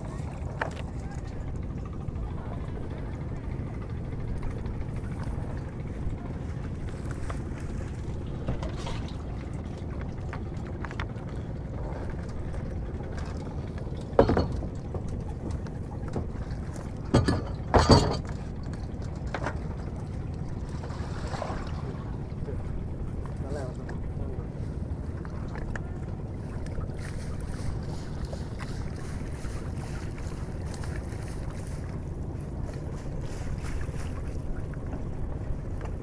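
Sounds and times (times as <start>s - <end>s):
boat engine rumble: 0.0s - 36.0s
water sloshing: 0.0s - 36.0s.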